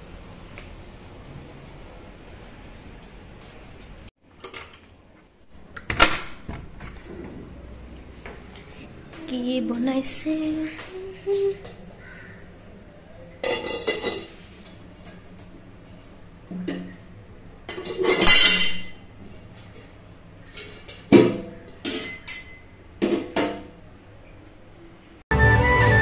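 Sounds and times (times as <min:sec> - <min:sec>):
pot lids clinking and clattering: 0:17.7 - 0:18.9.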